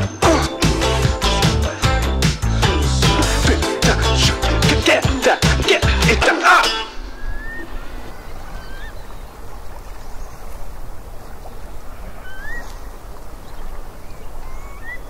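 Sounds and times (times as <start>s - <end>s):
rising bird chirps: 6.8s - 10.4s, 12.1s - 15.0s.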